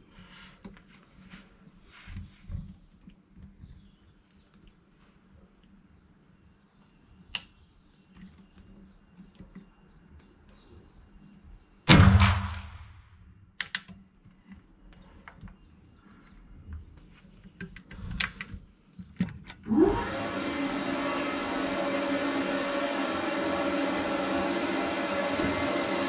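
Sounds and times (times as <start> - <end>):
rifle shot echoing: 11.9 - 13.1.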